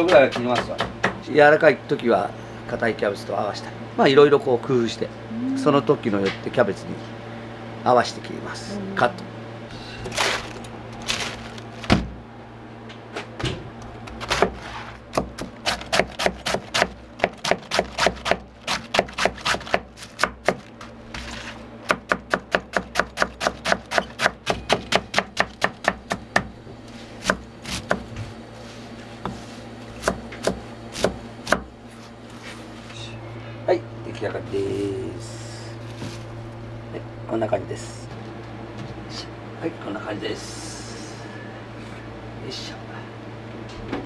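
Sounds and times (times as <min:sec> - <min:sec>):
steady low hum: 0:00.0 - 0:44.0
knife chopping on cutting board: 0:00.1 - 0:01.2, 0:14.2 - 0:20.7, 0:21.9 - 0:26.5, 0:27.2 - 0:28.2, 0:29.2 - 0:31.7.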